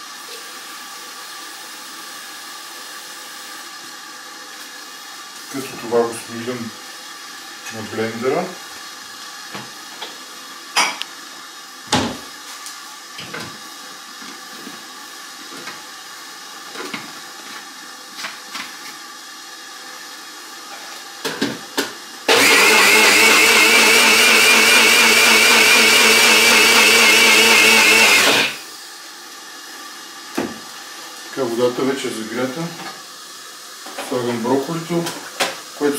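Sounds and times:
electric blender grinding: 22.3s - 28.7s.

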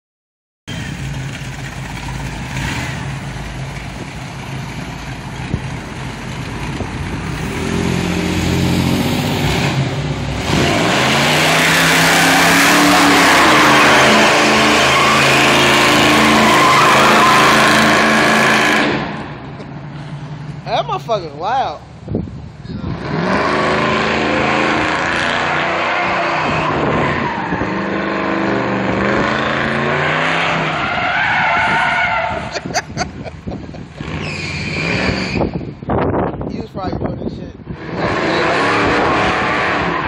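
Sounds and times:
tires squealing: 6.7s - 19.3s, 22.8s - 35.8s, 37.7s - 40.0s
car engine revving hard: 7.4s - 19.2s, 22.9s - 30.8s, 37.8s - 40.0s.

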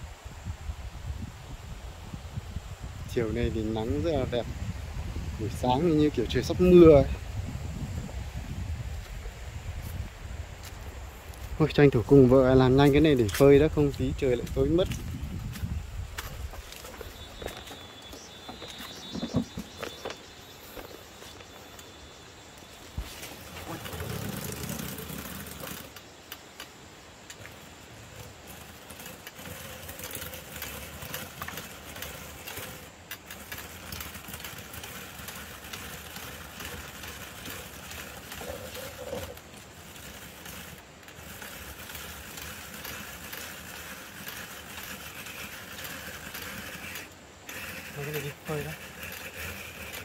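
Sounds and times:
blade disc chopping roots: 22.9s - 50.0s.

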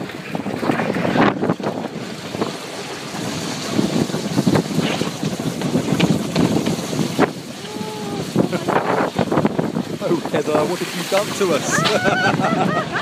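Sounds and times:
wind on microphone: 0.0s - 13.0s
wooden runners scraping on asphalt: 2.6s - 7.4s, 9.3s - 11.7s.

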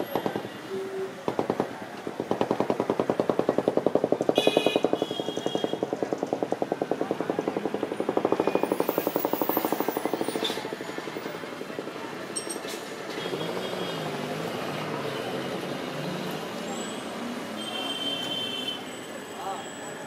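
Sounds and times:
small engine idling: 2.3s - 11.8s.

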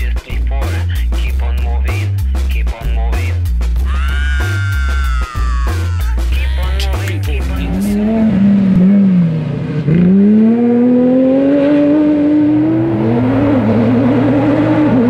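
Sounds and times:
music track: 0.0s - 8.6s
race car engine revving: 6.7s - 15.0s.

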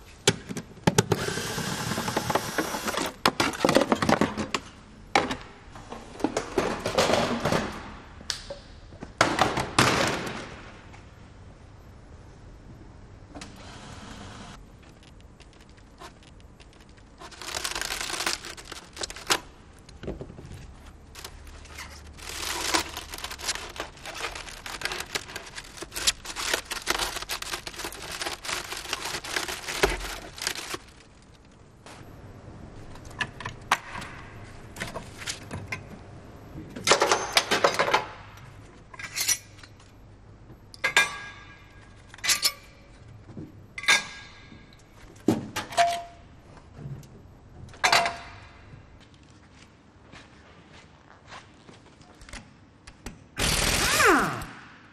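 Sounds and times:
aluminium foil crackling: 15.4s - 20.0s, 20.7s - 31.6s.

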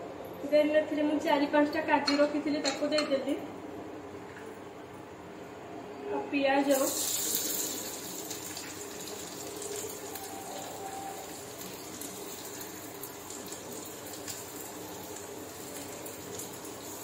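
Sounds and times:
onion frying in hot oil: 6.6s - 17.0s.

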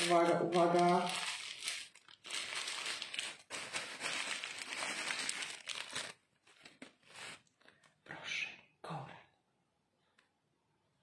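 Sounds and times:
plastic wrapping crinkling: 0.0s - 7.9s.

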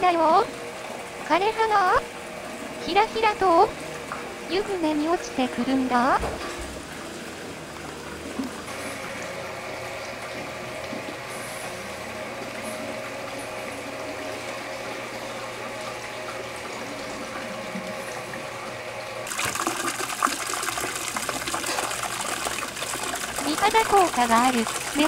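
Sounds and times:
water running and splashing: 0.0s - 25.0s
water spilling over rocks: 19.3s - 25.0s.

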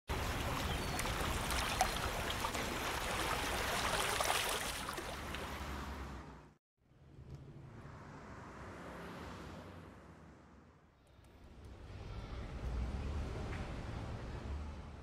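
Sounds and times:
water trickling: 0.1s - 5.7s
water flowing: 0.1s - 6.0s.

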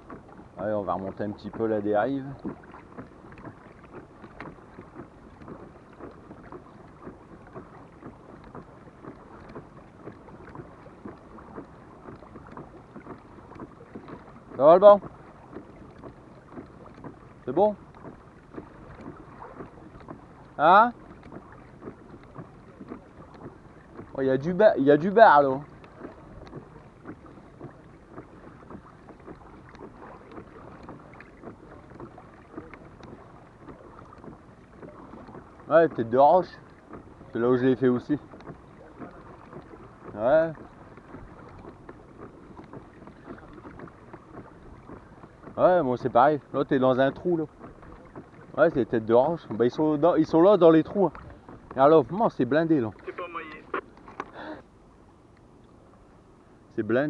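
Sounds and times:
water slapping at kayak hull: 0.0s - 57.0s.

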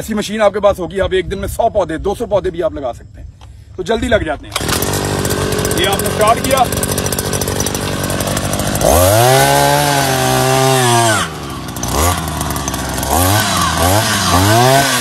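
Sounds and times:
two-stroke auger engine revving: 4.5s - 15.0s.

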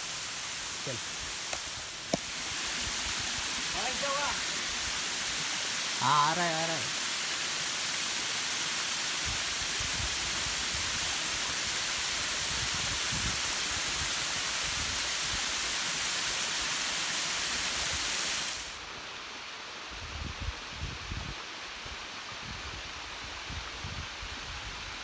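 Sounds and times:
waterfall pouring onto rock: 0.0s - 18.8s
wind rumbling on microphone: 20.0s - 25.0s.

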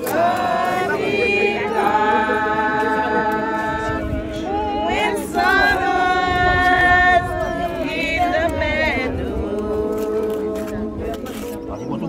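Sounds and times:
group singing a hymn unaccompanied: 0.0s - 11.2s.

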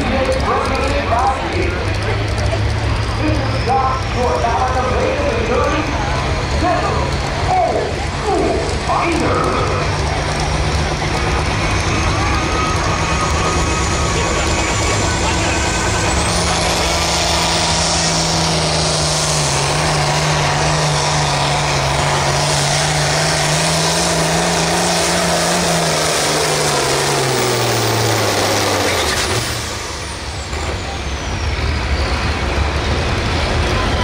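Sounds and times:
diesel tractor engine at full throttle: 0.0s - 34.0s
turbo whine winding down: 6.8s - 31.9s.

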